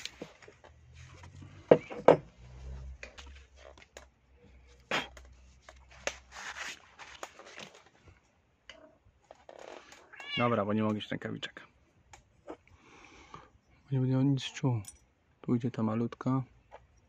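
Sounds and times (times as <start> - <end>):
work glove rustling: 0.0 - 1.9, 2.5 - 8.3.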